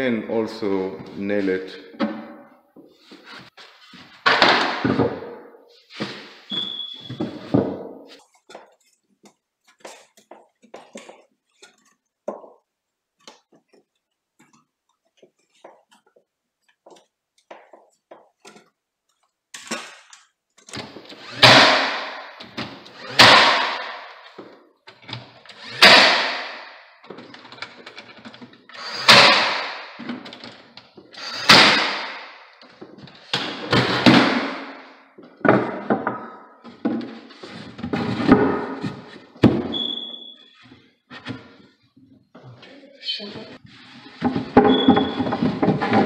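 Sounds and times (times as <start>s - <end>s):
nail gun shots: 21.2s - 22.4s, 23.0s - 24.2s, 25.6s - 26.8s, 28.8s - 30.0s, 31.2s - 32.4s.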